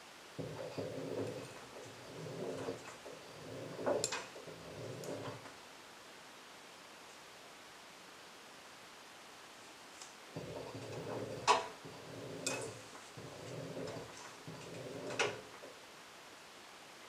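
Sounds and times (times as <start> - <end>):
low motor hum: 0.4 - 5.5, 10.4 - 15.6
washing machine drum tumbling: 0.4 - 5.5, 10.4 - 15.7.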